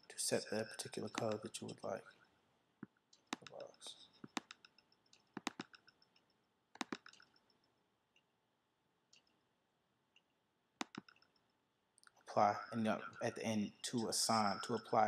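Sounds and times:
computer mouse clicking: 0.3 - 2.0, 2.8 - 8.3, 9.1 - 9.4, 10.2 - 11.5.

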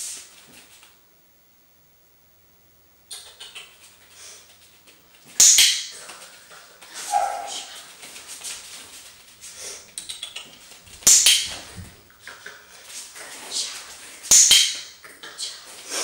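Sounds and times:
puppy whining: 6.9 - 7.9.

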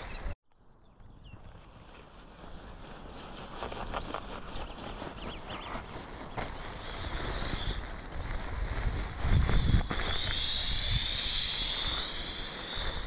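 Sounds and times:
inflatable mat rustling and crinkling: 1.6 - 10.1.

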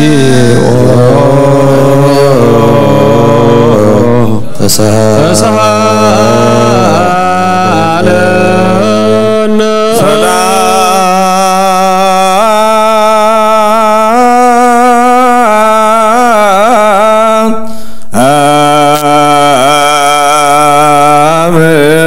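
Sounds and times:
clergy chanting: 0.0 - 22.0
low sustained drone note: 5.2 - 11.0.

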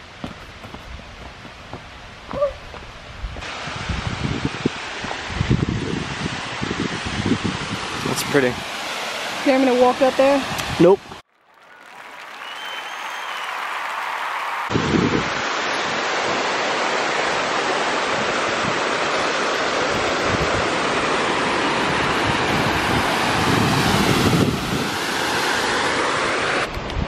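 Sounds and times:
wind buffeting microphone: 0.2 - 8.7, 14.7 - 16.4, 19.8 - 21.1, 21.7 - 25.2.

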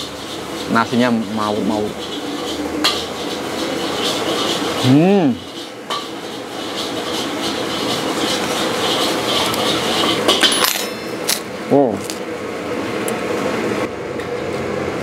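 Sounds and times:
cutlery scraping ceramic plate: 0.0 - 11.3.

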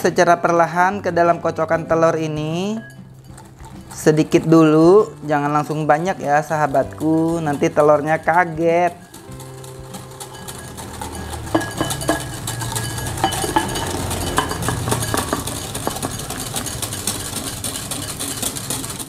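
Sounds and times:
whisk clinking against glass bowl: 2.4 - 19.0
cream pouring: 6.3 - 19.0.

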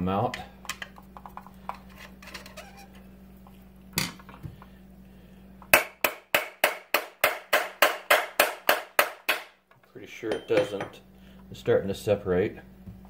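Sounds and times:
metal-on-metal hammer taps: 10.3 - 11.0.

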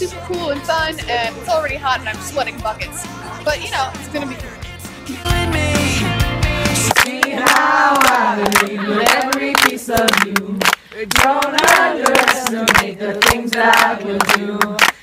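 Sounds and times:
pop-rock music: 0.0 - 7.0
group of people singing: 5.1 - 15.0
hand claps: 6.8 - 15.0.

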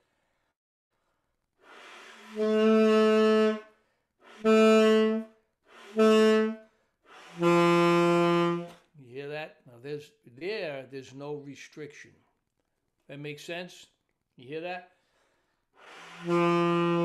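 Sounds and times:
tenor saxophone notes: 2.1 - 3.7, 4.3 - 8.8, 15.8 - 17.0.

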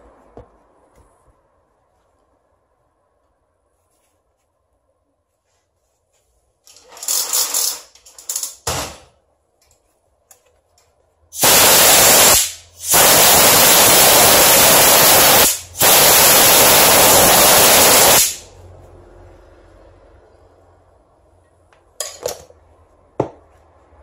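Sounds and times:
compressed air blow gun blasting: 11.4 - 18.5.

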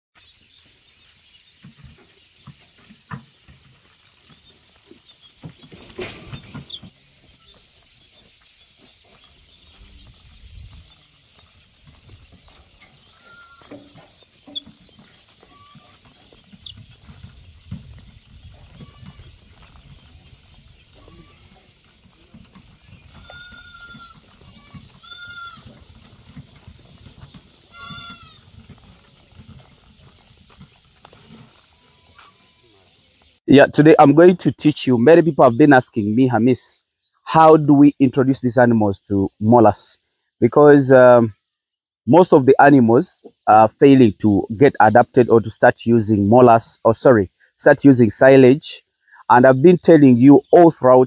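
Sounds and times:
goats bleating: 13.1 - 14.1, 15.4 - 16.1, 18.6 - 19.3, 21.0 - 21.7, 23.1 - 25.9, 27.7 - 28.5
knocks and thumps: 13.6 - 19.9.

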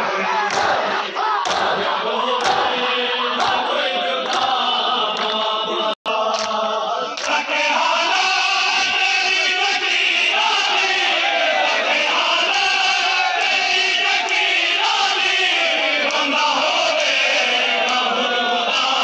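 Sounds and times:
men chanting in unison: 0.0 - 19.0.

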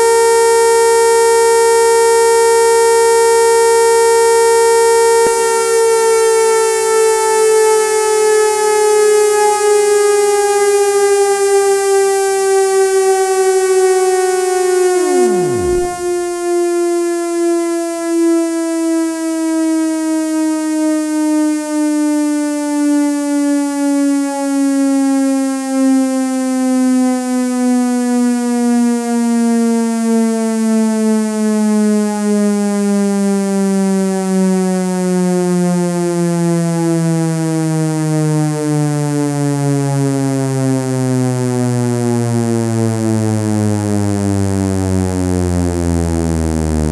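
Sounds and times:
siren winding down: 14.6 - 16.3
steep downward sweep: 14.6 - 16.4.

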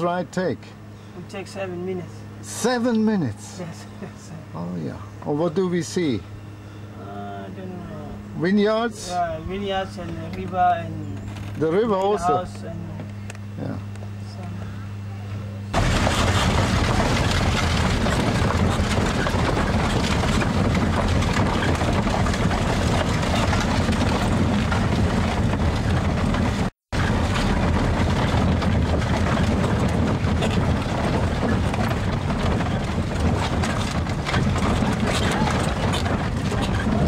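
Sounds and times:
horse-drawn carriage rumbling: 15.7 - 37.0.

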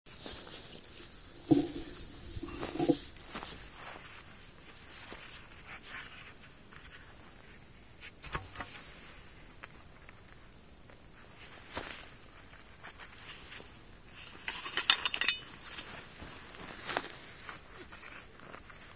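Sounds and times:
footsteps in dry grass: 0.1 - 7.4, 15.5 - 18.9
rustling of grass and gloves: 0.1 - 18.9.

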